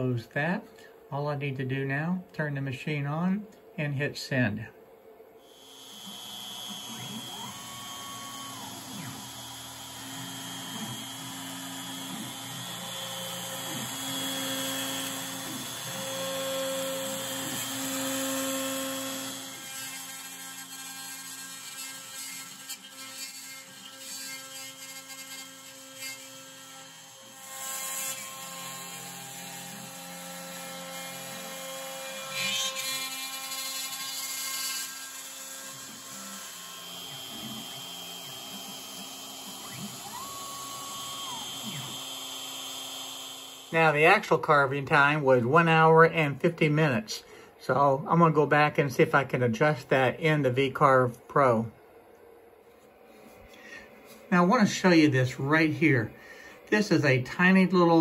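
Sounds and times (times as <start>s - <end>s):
router spindle running: 5.5s - 44.0s
stepper motor tones: 5.6s - 19.5s, 37.1s - 44.1s.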